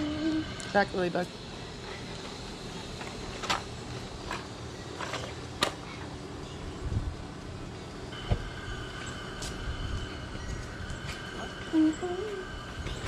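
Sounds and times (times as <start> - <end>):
propane burner igniting whoomp: 0.0 - 11.7.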